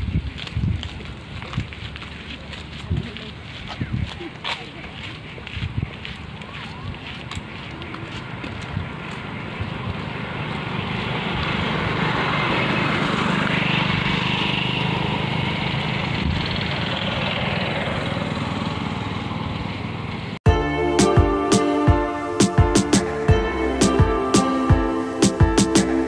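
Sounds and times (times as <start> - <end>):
auto-rickshaw engine passing: 8.2 - 20.4
motorcycle passing: 8.2 - 20.4.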